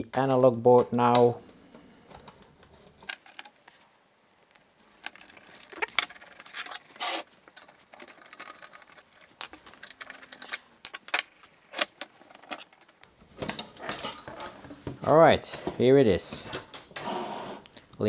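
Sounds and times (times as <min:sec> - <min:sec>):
loose screws rattling: 0:05.0 - 0:14.6.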